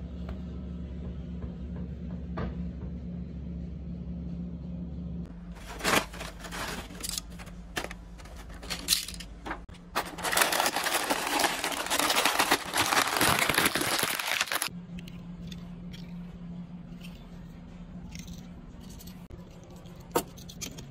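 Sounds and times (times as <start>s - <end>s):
plastic packaging crinkling: 5.6s - 9.2s, 9.8s - 14.7s.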